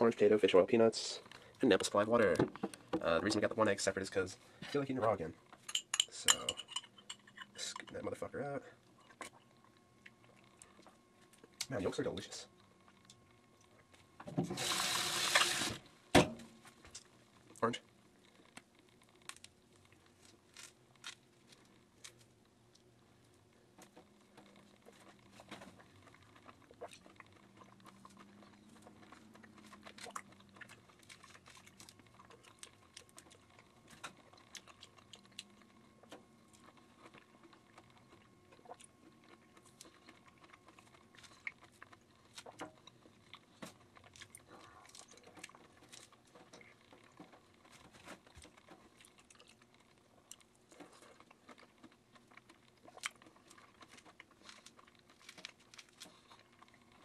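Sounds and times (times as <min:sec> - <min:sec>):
person chewing: 0:18.2 - 0:57.0.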